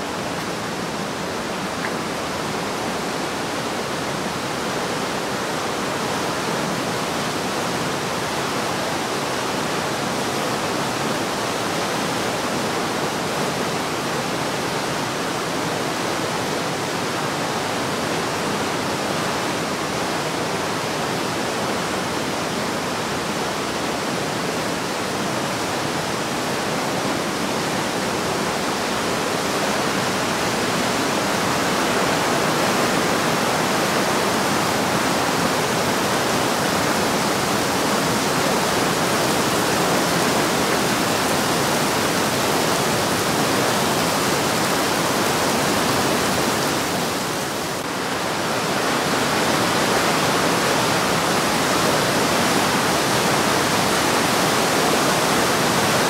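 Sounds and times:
whitewater rushing through gorge: 0:00.0 - 0:56.0.

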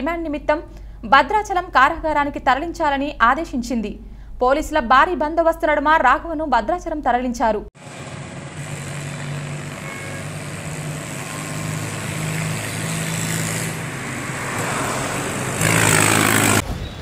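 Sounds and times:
vehicle engine running: 0:07.8 - 0:16.6
road noise: 0:07.8 - 0:17.0
surge of vehicle noise: 0:07.8 - 0:17.0.

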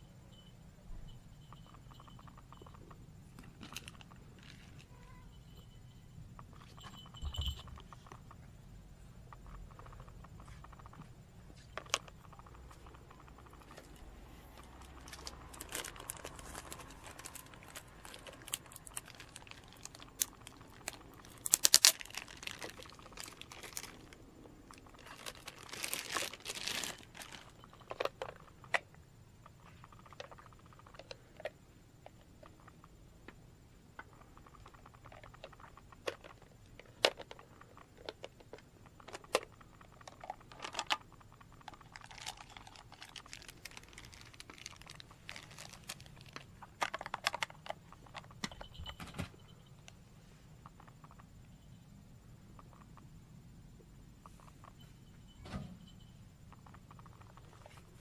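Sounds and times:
plastic packaging crinkling: 0:03.4 - 0:04.8, 0:13.6 - 0:28.8, 0:39.1 - 0:48.3
plastic toy parts clicking: 0:34.4 - 0:48.5.

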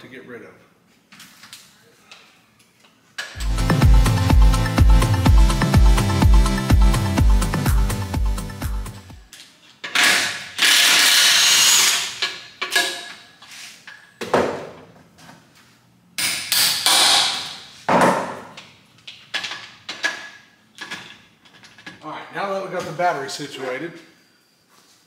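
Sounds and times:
power tool running: 0:10.0 - 0:12.2.

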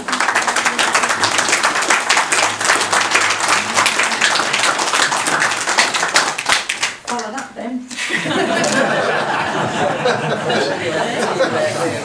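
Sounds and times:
people applauding: 0:00.0 - 0:07.5, 0:08.5 - 0:09.0.

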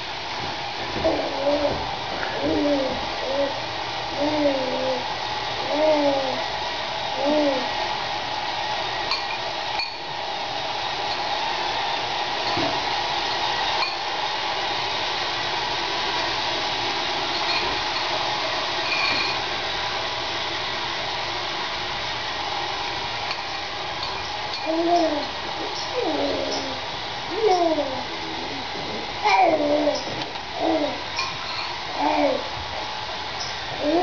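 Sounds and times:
steady hiss: 0:00.0 - 0:34.0
baby cooing: 0:01.0 - 0:05.0, 0:05.6 - 0:06.4, 0:07.2 - 0:07.7, 0:24.6 - 0:25.3, 0:25.9 - 0:28.6, 0:29.2 - 0:31.0, 0:32.0 - 0:32.5, 0:33.8 - 0:34.0.

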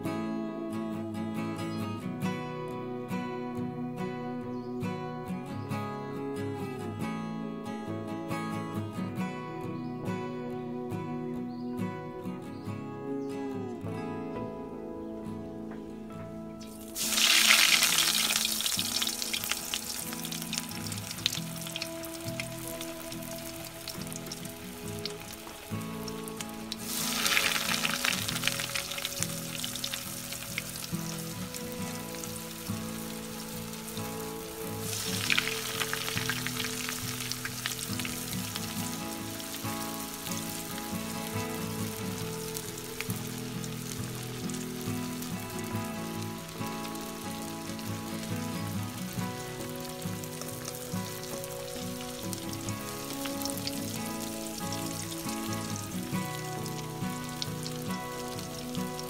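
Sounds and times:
rolls deep-frying in oil: 0:16.7 - 0:59.0.

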